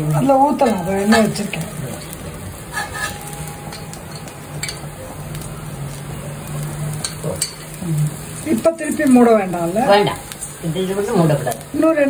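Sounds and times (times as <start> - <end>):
batter sizzling in oil: 0.0 - 12.0
spatula scraping and tapping: 2.0 - 4.9.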